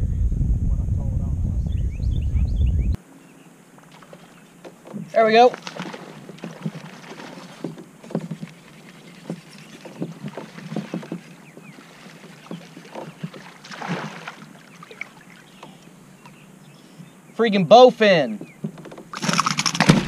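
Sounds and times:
water splashing at kayak hull: 3.8 - 16.4, 18.4 - 20.0
knocks and clicks: 18.4 - 20.0.

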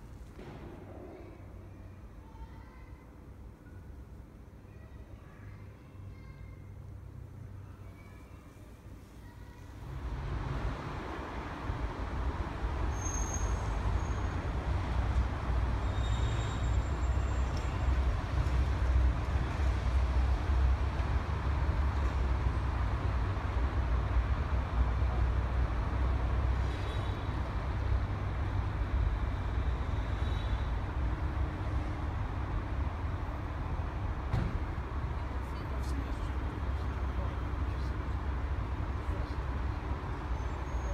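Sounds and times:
city traffic rumble: 0.0 - 40.9
faint high squeals: 12.9 - 14.4, 15.8 - 17.9.

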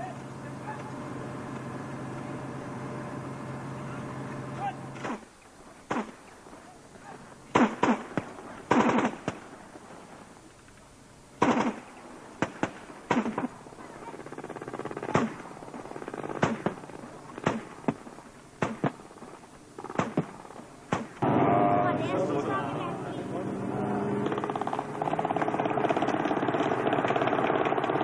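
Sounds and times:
gunshots: 5.9 - 6.2, 7.5 - 9.5, 11.4 - 21.7.

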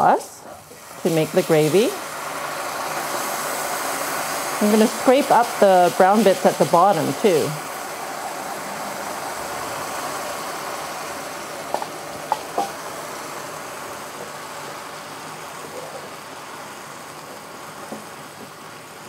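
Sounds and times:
gravy sizzling and bubbling in pan: 0.0 - 19.0
spoon knocking against pan: 11.7 - 12.8.

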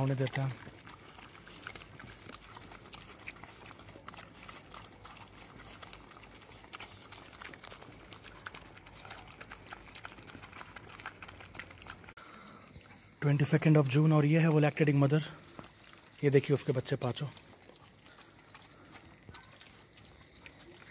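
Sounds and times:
dogs chewing and licking: 0.0 - 20.9
small irregular clicks: 0.1 - 12.6.

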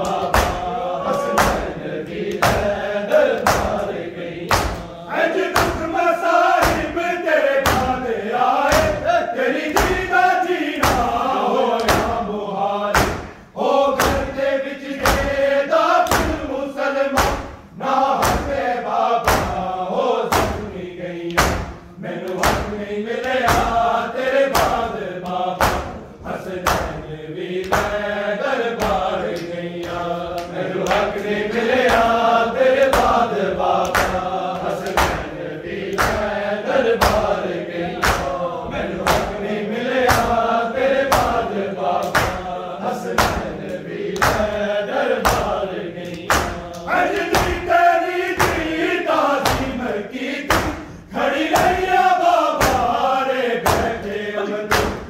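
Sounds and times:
hands slapping chests: 0.0 - 16.5, 17.1 - 40.4, 41.0 - 44.6, 45.2 - 55.0
men chanting together: 0.0 - 55.0.

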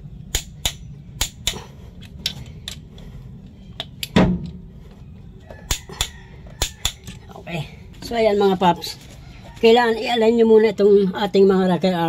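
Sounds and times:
hand tools clicking and knocking: 0.3 - 4.6, 5.7 - 7.3.

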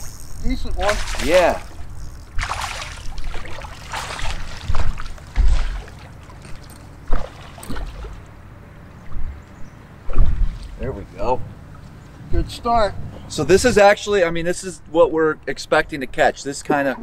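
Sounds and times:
heavy low thump: 10.1 - 10.7.

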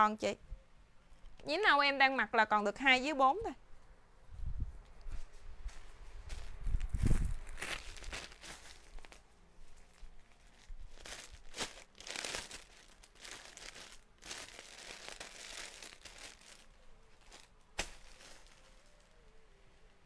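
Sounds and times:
plastic bags crinkling: 7.4 - 19.0.

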